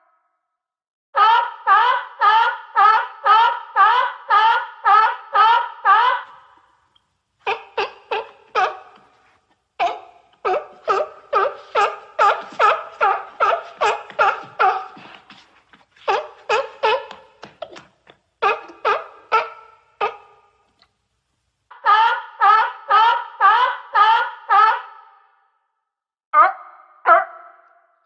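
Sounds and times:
seal barking: 7.4 - 9.2, 9.8 - 15.3, 16.0 - 17.8, 18.4 - 20.5, 26.4 - 27.6.

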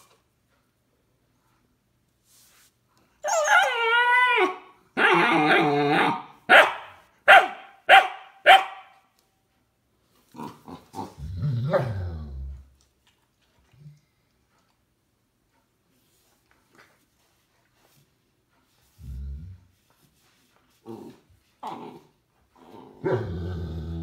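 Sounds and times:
puppy whining: 3.2 - 6.3
puppy barking: 5.0 - 9.1
puppy growling: 10.3 - 12.8, 20.8 - 24.0.

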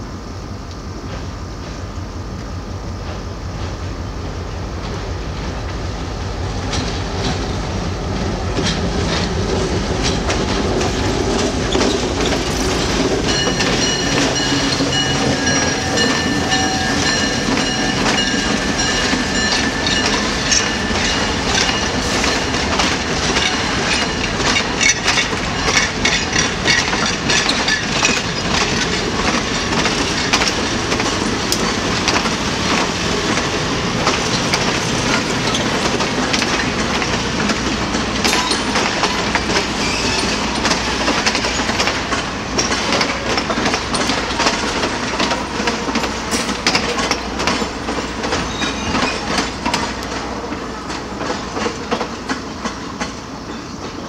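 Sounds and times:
diesel locomotive engine drone: 0.0 - 54.0
train wheels clicking over rail joints: 0.6 - 54.0
high steady wheel squeal: 11.6 - 22.6, 38.4 - 41.7, 48.3 - 49.6.

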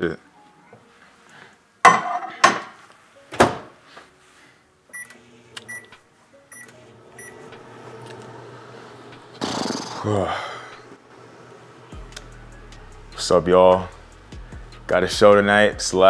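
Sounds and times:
keypad beeps: 4.9 - 5.9, 6.5 - 7.4
microwave oven humming: 6.6 - 9.4, 10.8 - 12.6.

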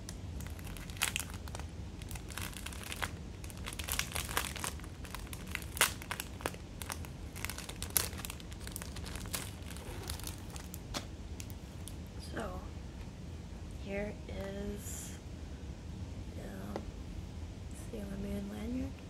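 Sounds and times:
plastic bag crinkling: 0.4 - 12.0.

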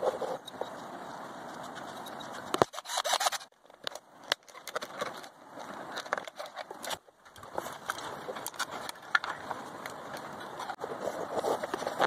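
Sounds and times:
plastic parts scraping and rustling: 0.0 - 12.0.

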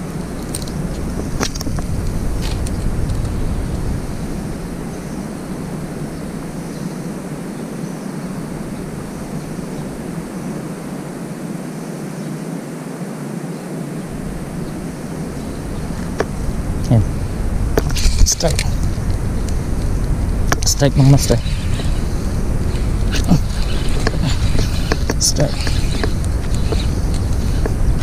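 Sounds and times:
deep rumble: 14.1 - 28.0.

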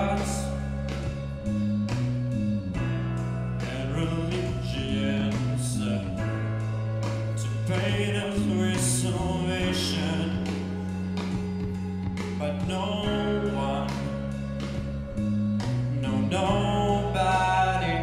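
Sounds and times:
instrumental accompaniment: 0.0 - 18.0.

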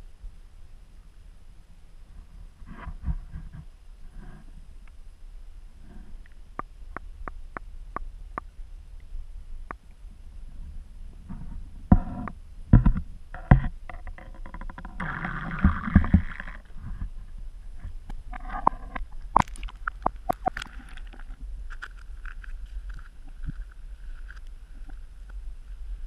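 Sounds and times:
muffled water sloshing and gurgling: 10.4 - 26.0.

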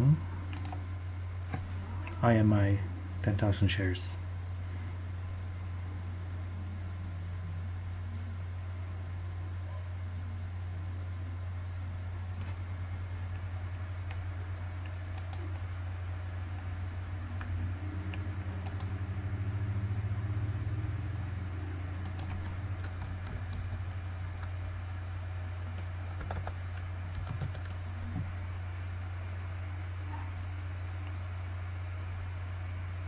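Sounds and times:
steady low hum: 0.0 - 33.0
keyboard typing: 0.5 - 0.8, 14.8 - 15.7, 17.3 - 19.0, 22.0 - 24.6, 25.6 - 28.3.

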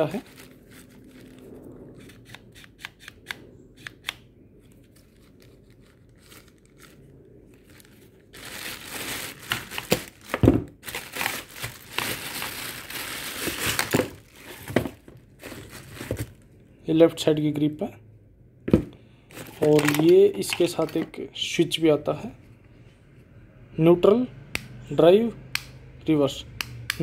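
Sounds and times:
plastic packaging crinkling: 0.0 - 2.1, 4.6 - 16.5, 19.3 - 21.2.

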